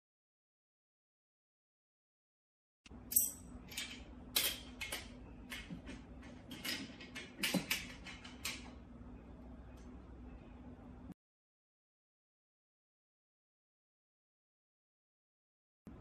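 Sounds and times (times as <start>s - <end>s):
faint hum: 2.9s - 11.2s.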